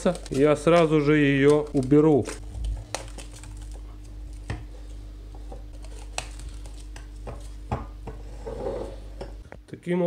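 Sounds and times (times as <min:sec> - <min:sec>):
plastic cling film rustling: 0:00.0 - 0:04.5, 0:05.7 - 0:07.6
steady low hum: 0:00.0 - 0:10.0.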